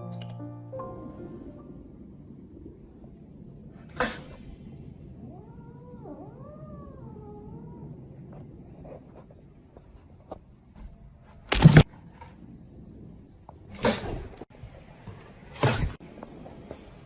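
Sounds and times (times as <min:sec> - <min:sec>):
cat meowing: 0:05.2 - 0:08.1.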